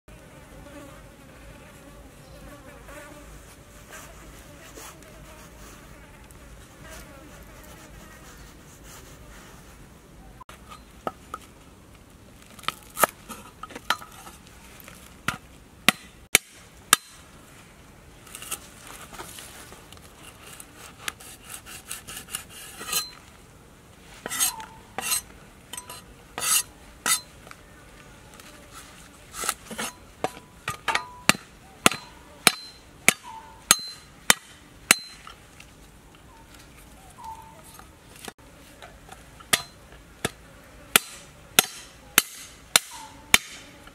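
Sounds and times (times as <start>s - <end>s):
cleaver chopping on wooden block: 31.3s - 35.2s, 39.5s - 43.6s.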